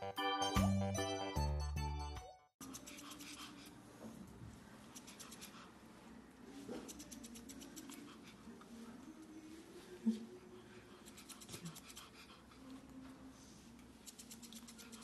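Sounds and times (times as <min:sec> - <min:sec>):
scissors snipping fur: 0:02.6 - 0:03.7, 0:04.9 - 0:05.7, 0:06.8 - 0:08.2, 0:11.0 - 0:12.2, 0:14.0 - 0:15.0.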